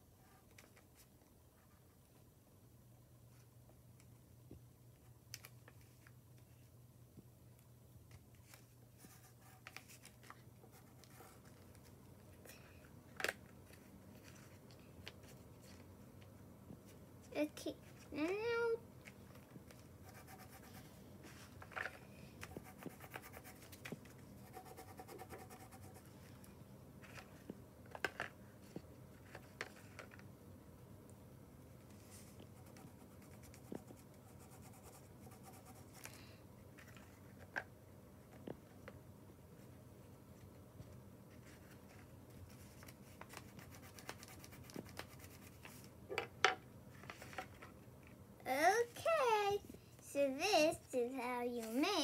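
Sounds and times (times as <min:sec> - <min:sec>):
crayon scratching on paper: 0:20.0 - 0:20.8, 0:22.5 - 0:23.7, 0:24.4 - 0:26.1.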